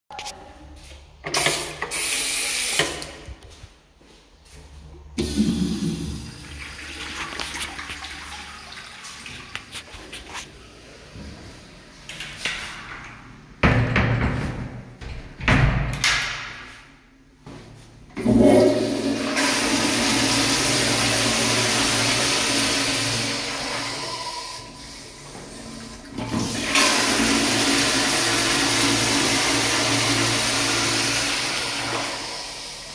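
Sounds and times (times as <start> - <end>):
toilet flushing: 5.2 - 9.9, 18.1 - 32.9.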